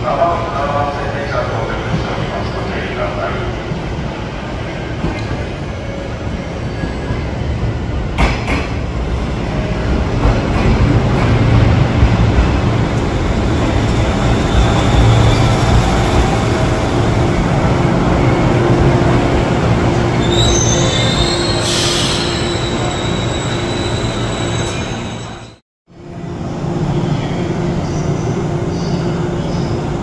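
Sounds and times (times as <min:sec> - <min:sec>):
train wheels rumbling on rails: 0:00.4 - 0:23.2
high brake squeal: 0:20.2 - 0:25.6.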